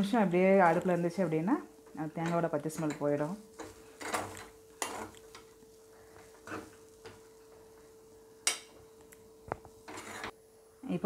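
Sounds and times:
faint steady hum: 0:00.0 - 0:11.0
spoon scraping metal pan: 0:02.8 - 0:05.2, 0:06.4 - 0:06.8, 0:09.9 - 0:10.3.

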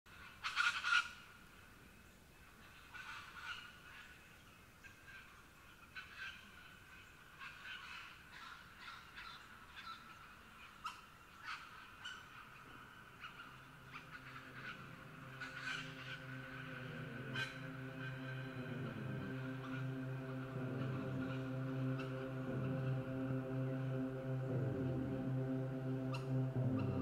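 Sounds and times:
birds calling: 0:02.7 - 0:27.0
low held tone: 0:13.7 - 0:27.0.

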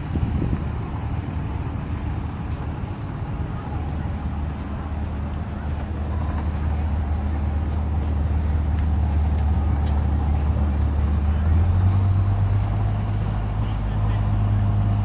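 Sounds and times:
engine humming: 0:00.0 - 0:15.0.

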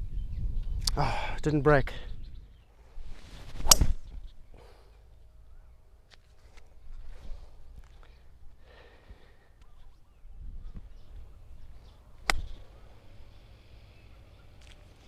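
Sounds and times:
golf club striking ball: 0:03.6 - 0:04.0.

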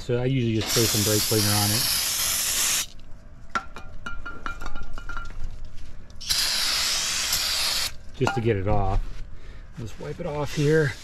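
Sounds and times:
aerosol spray hissing: 0:00.6 - 0:02.9, 0:06.2 - 0:07.9.

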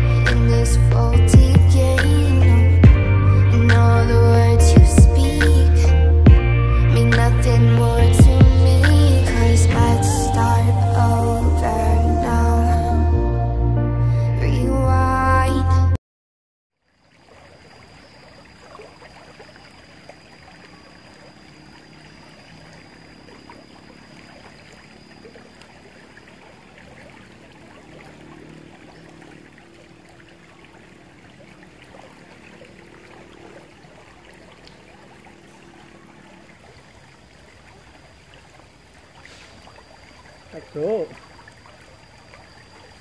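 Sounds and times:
river flowing over stones: 0:17.0 - 0:43.0.

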